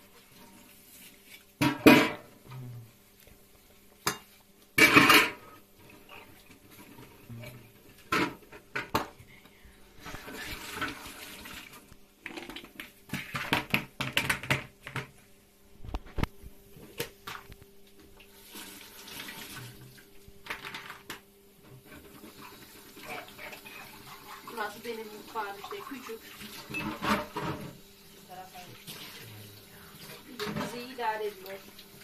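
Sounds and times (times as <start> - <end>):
dishes clinking against sink: 1.6 - 2.3, 4.1 - 9.2, 26.4 - 27.8, 30.2 - 31.0.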